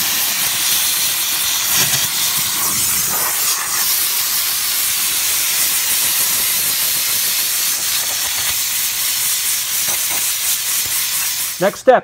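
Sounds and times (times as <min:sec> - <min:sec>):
steam cleaner hissing: 0:00.0 - 0:12.0.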